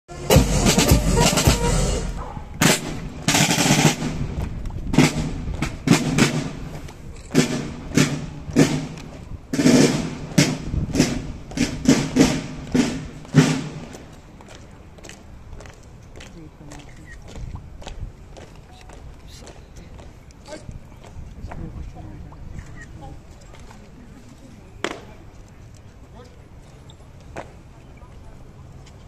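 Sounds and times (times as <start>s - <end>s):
marching drums beating: 0.1s - 14.1s.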